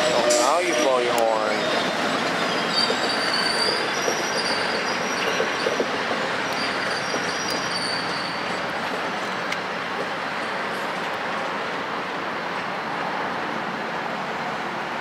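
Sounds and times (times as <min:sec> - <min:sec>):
high-pitched wheel squeal: 0:00.0 - 0:05.8, 0:06.4 - 0:08.6
train wheels rumbling on rail: 0:00.0 - 0:15.0.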